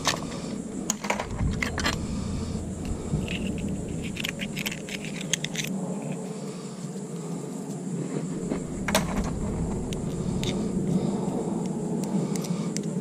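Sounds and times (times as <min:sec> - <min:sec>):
low steady rumble: 0:00.0 - 0:06.5, 0:08.3 - 0:12.4
metal spoon scraping shells: 0:03.2 - 0:05.7.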